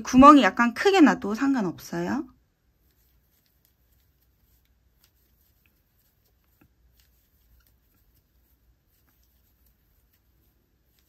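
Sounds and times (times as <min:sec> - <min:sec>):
crochet hook ticking and rustling: 0:02.8 - 0:11.0.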